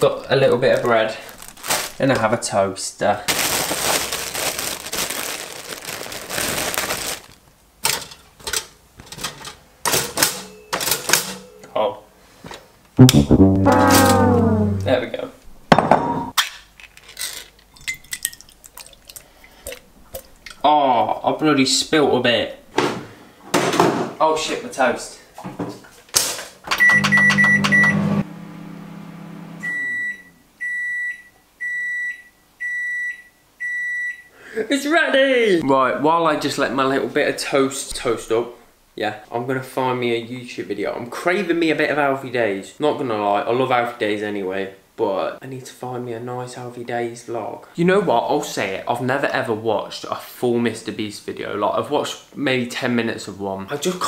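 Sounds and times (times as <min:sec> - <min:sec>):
plastic bag rustling: 0:00.6 - 0:02.3, 0:03.2 - 0:07.5
microwave oven humming: 0:26.7 - 0:30.4
microwave beeps: 0:26.7 - 0:34.3.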